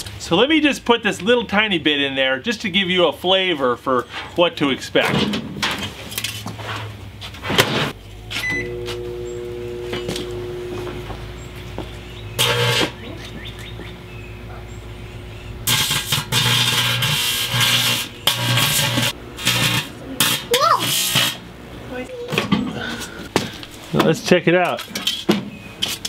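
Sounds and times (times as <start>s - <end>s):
microwave oven humming: 8.1s - 20.8s
keypad beeps: 8.4s - 8.9s.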